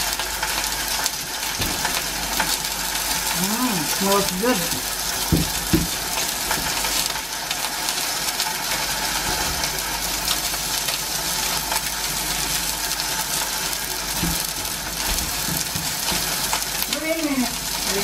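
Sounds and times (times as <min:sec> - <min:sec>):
steak sizzling in frying pan: 0:00.0 - 0:18.0
soft knocks: 0:05.3 - 0:06.0.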